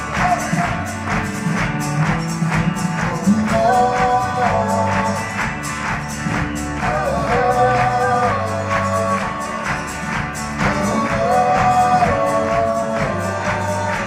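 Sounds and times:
drums beating: 0.0s - 14.0s
strummed acoustic guitar: 0.0s - 14.0s
voices singing together: 3.0s - 14.0s.

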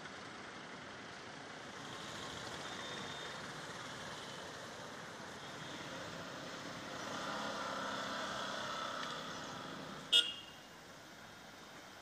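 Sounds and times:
road traffic noise: 0.0s - 12.0s
short sharp horn beep: 10.1s - 10.6s
held vehicle horn tones: 10.1s - 10.7s.

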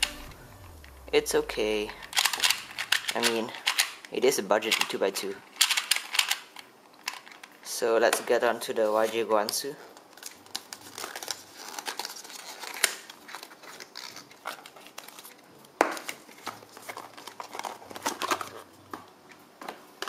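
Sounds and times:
card and paper rustling: 1.6s - 4.0s, 8.8s - 20.0s.

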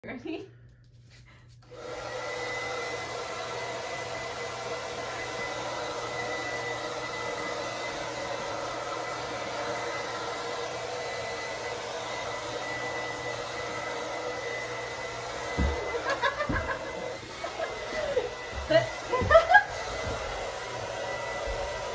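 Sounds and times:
hair dryer running: 1.6s - 21.9s.

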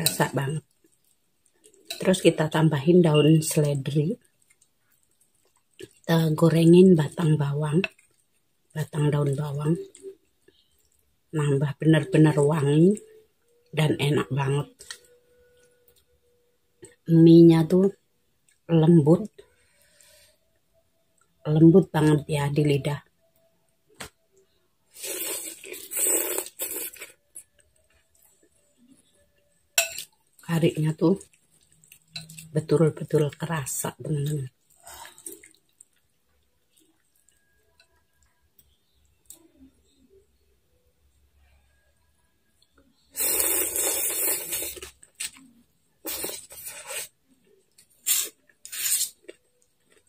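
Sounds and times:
faint chewing: 0.0s - 2.2s, 3.1s - 6.1s, 7.1s - 11.2s, 23.4s - 40.2s, 42.5s - 50.0s
person slurping noodles: 24.9s - 27.1s, 43.2s - 45.0s.

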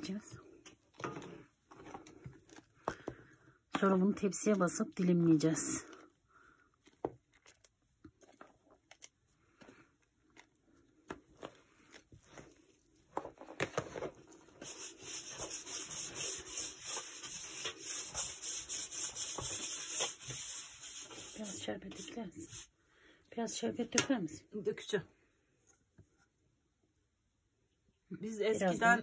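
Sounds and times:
hands rubbing gritty mixture: 14.2s - 22.7s.

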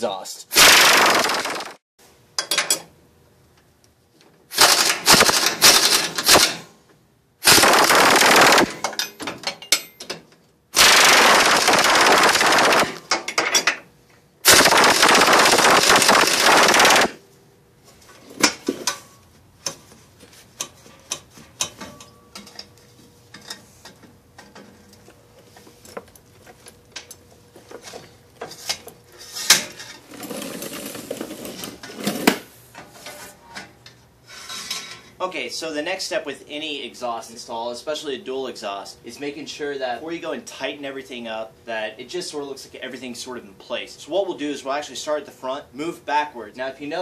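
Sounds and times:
impact wrench hammering: 4.5s - 6.6s, 7.4s - 9.2s.

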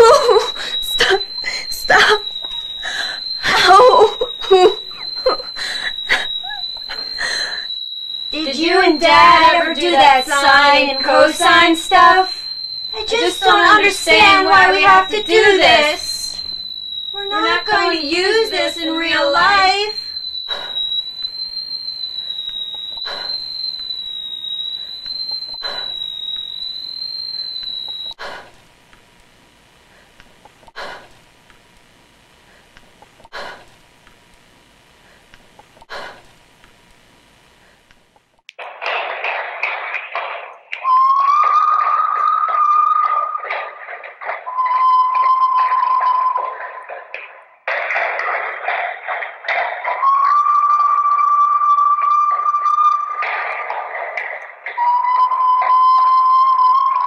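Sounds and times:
high-pitched whine: 0.0s - 28.6s, 38.5s - 57.0s
high voice singing: 8.4s - 12.4s, 13.0s - 16.3s
low hiss: 27.3s - 41.0s
person breathing heavily: 28.2s - 28.6s, 33.3s - 33.7s, 35.9s - 36.3s.

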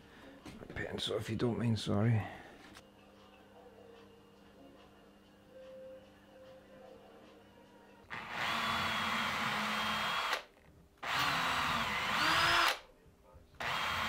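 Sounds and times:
cordless drill boring into wood: 8.1s - 12.8s, 13.6s - 14.0s.

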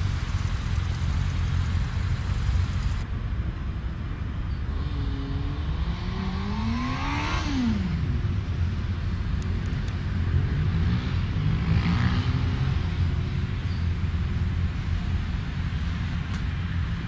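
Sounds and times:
motorcycle engine accelerating: 0.0s - 3.0s
low engine rumble: 0.0s - 4.4s.

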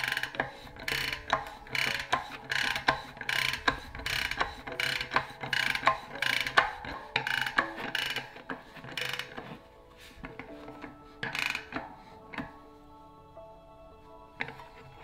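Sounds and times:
bicycle freehub ratcheting clicks: 0.0s - 9.5s, 11.2s - 11.9s.

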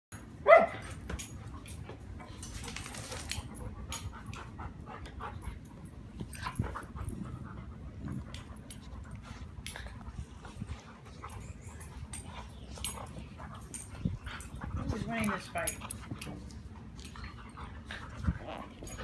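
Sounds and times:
dogs scuffling: 1.2s - 3.6s
dog panting: 3.4s - 19.0s.

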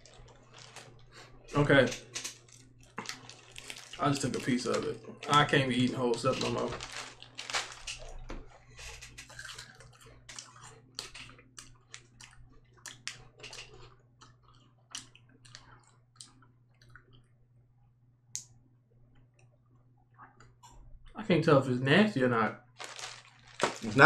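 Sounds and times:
person chewing candy: 0.0s - 17.3s, 22.8s - 24.0s
low steady hum: 0.0s - 24.0s.

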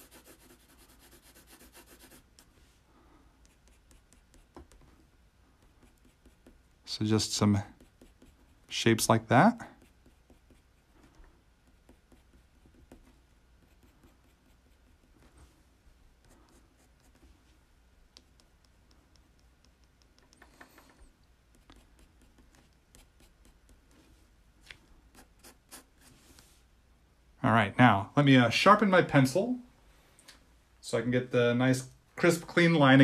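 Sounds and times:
pencil scratching on paper: 0.0s - 2.5s, 3.4s - 4.8s, 5.6s - 6.7s, 7.5s - 8.8s, 9.6s - 15.4s, 16.2s - 17.4s, 21.5s - 24.0s, 25.1s - 26.2s.

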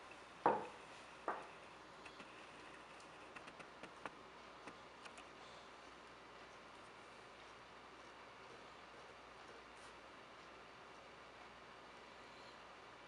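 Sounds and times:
mug knocking on wooden desk: 0.5s - 0.7s.

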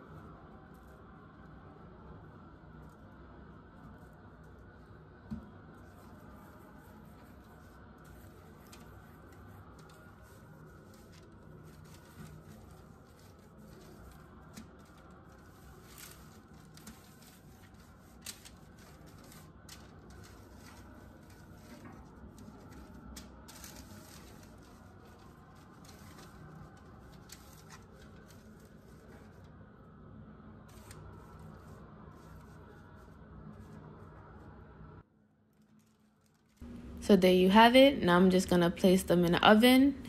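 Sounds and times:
low room hum: 0.0s - 40.0s
foil crinkling and taps: 8.2s - 29.4s.

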